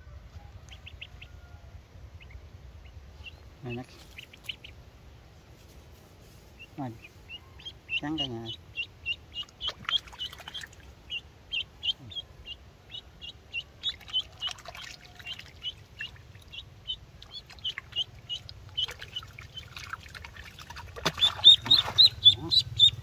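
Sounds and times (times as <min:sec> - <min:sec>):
duckling peeping: 0:00.6 - 0:04.8, 0:06.6 - 0:23.0
splashing water: 0:09.4 - 0:11.0, 0:13.8 - 0:22.8.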